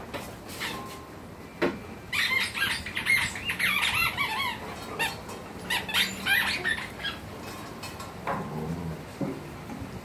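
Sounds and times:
puppies yipping and whining: 2.1 - 7.4.

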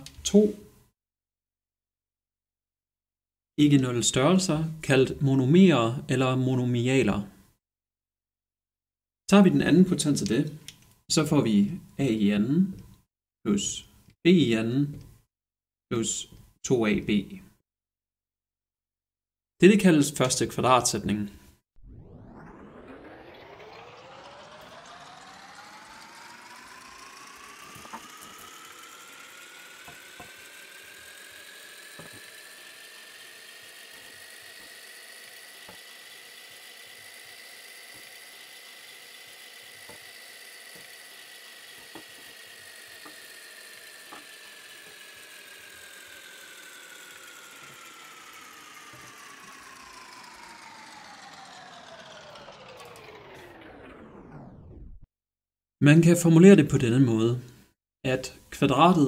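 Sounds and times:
whirring sound effect: 21.8 - 55.1.

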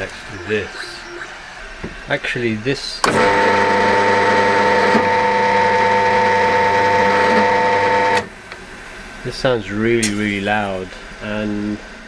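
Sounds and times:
pillar drill humming and whining: 3.0 - 8.3.

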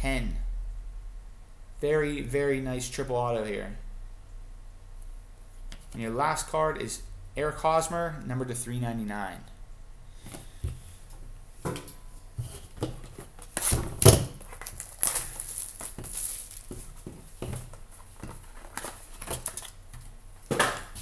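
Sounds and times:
shrink wrap crinkling and tearing: 13.4 - 19.9.

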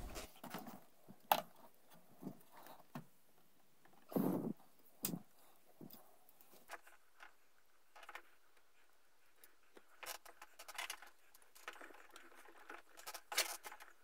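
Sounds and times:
handling rustles scrapes and clicks: 5.5 - 14.0.

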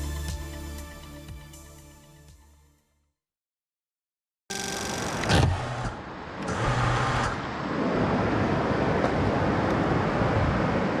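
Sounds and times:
outdoor rumble and hiss: 4.8 - 11.0.

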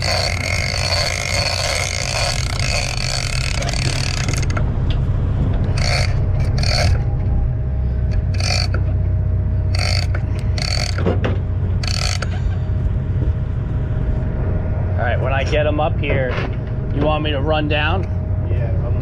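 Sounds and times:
fishing reel whirring: 0.0 - 4.6, 5.7 - 7.1, 8.1 - 8.9, 9.7 - 11.1, 11.8 - 12.4
steady low rumble: 0.0 - 19.0.

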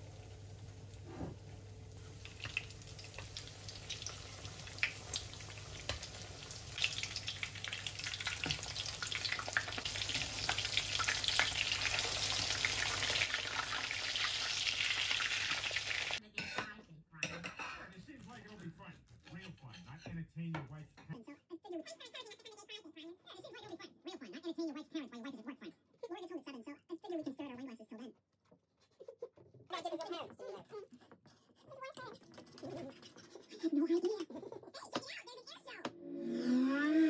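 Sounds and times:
cutlets sizzling in frying oil: 0.0 - 16.2.

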